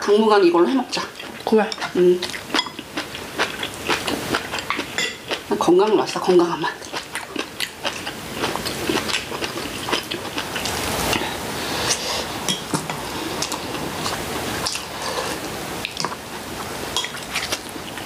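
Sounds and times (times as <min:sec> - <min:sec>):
people chewing: 0:00.9 - 0:18.0
slurping soup: 0:08.4 - 0:16.0.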